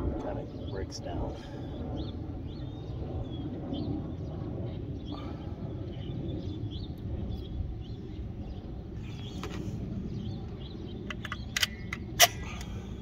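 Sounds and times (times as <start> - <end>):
steady low rumble: 0.0 - 13.0
small birds chirping: 0.2 - 13.0.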